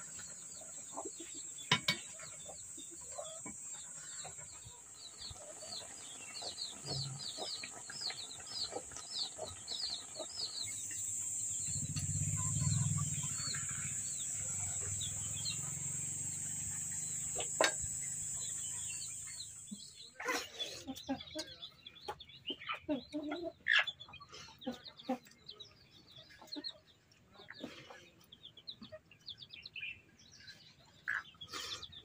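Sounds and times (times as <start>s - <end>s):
steady high-pitched hiss: 0.0s - 20.2s
small birds chirping: 0.0s - 32.0s
low rumble: 11.5s - 15.5s.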